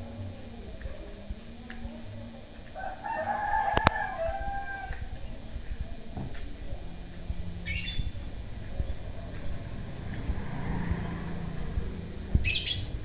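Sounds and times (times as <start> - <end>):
rooster crowing: 2.8 - 6.0
small bird chirping: 4.3 - 13.0.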